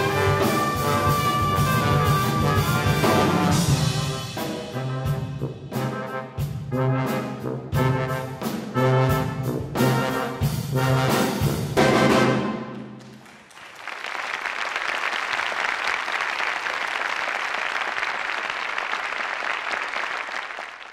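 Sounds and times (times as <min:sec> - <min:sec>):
brass ensemble playing loud chords: 0:00.0 - 0:12.7
audience applause: 0:13.0 - 0:20.9.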